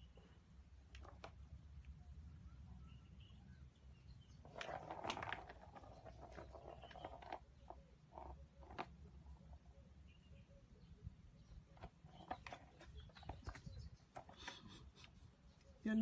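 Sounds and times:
cats pawing plastic toy: 4.4 - 9.2, 11.7 - 14.9
ball rattling in toy track: 4.5 - 9.0.

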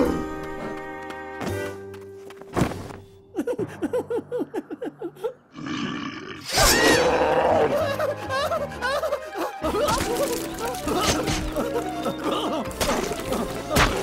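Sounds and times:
cartoon background music: 0.0 - 1.9, 6.5 - 14.0
creature roaring cry: 5.5 - 7.9.

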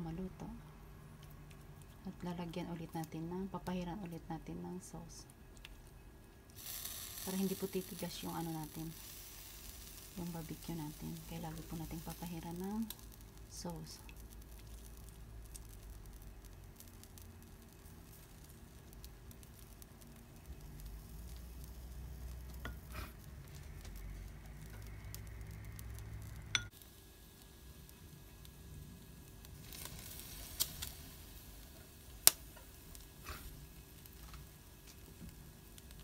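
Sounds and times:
meat sizzling on a grill: 6.5 - 36.0.

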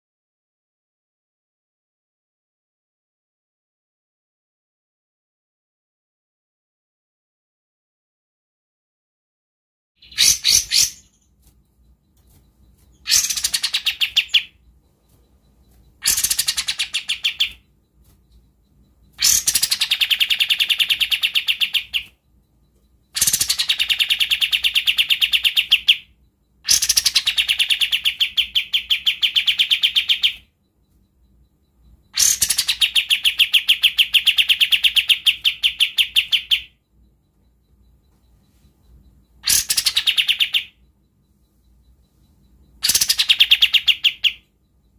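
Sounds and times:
bulbul singing rapid trill: 10.0 - 38.1, 38.9 - 44.9.

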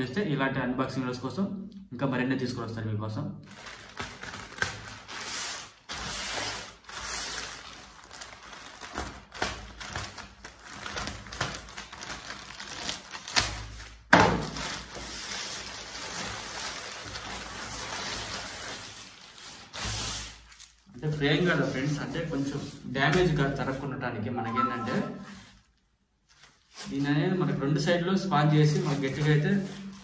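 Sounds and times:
plastic mailer crinkling and tearing: 3.4 - 20.9, 28.5 - 30.0.

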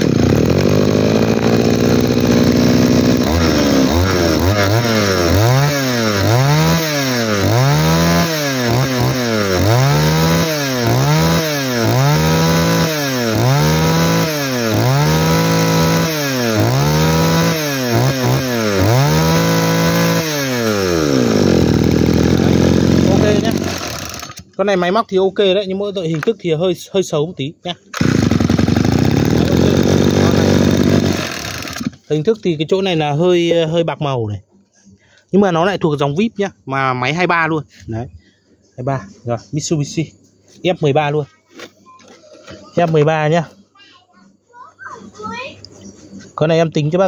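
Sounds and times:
brush-cutter engine revving: 0.0 - 24.7, 27.9 - 32.2.

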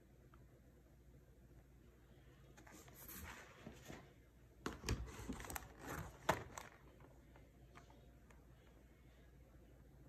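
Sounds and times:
packaging rustling: 4.8 - 7.1.

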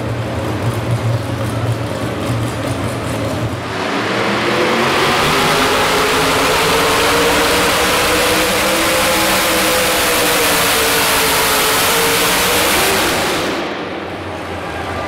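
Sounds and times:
truck engine revving under load: 0.0 - 14.4.

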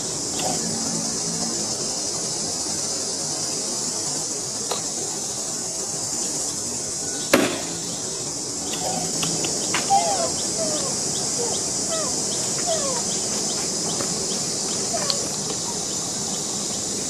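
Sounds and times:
high-pitched insect buzz: 0.0 - 17.0
sharp knock: 7.3 - 7.7
faint regular ticks: 12.3 - 17.0.

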